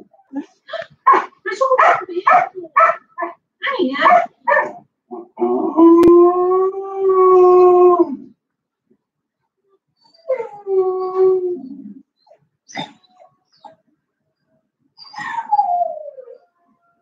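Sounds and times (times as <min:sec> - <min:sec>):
puppy howling: 0:05.1 - 0:08.3.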